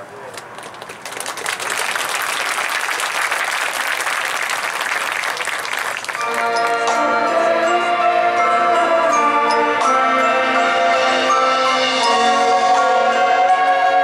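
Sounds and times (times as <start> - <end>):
crowd applauding: 0.3 - 7.0
marching band held chord: 5.2 - 14.0.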